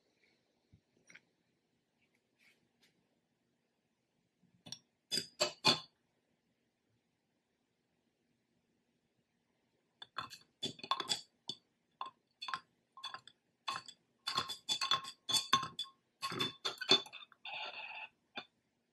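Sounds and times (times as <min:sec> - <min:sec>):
glass straw clinking in glass: 0:05.1 - 0:05.8, 0:10.0 - 0:11.3, 0:12.4 - 0:17.8.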